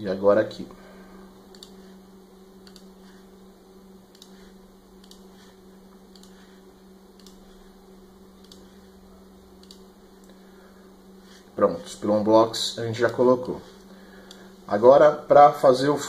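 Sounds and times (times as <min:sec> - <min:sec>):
low hum: 0:00.0 - 0:16.0
computer mouse clicks: 0:01.5 - 0:01.8, 0:02.6 - 0:02.9, 0:04.1 - 0:04.4, 0:05.0 - 0:06.5, 0:07.2 - 0:07.5, 0:08.4 - 0:08.8, 0:09.6 - 0:10.4.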